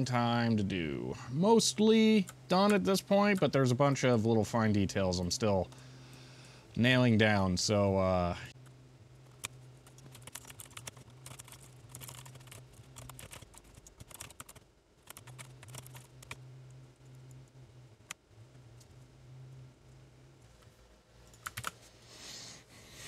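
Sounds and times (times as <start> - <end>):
mechanical keyboard typing: 9.4 - 16.4, 21.4 - 21.8.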